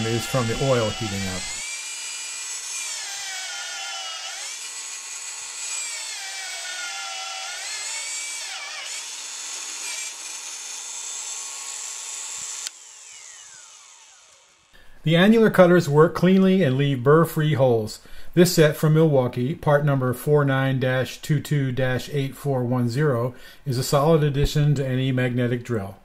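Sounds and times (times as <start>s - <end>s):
magnetic drill cutting steel: 0.0s - 14.7s.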